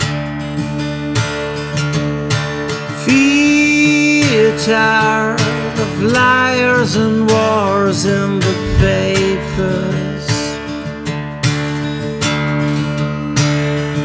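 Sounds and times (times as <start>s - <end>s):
acoustic guitar strumming: 0.0s - 14.0s
man singing wordless notes: 3.0s - 10.8s.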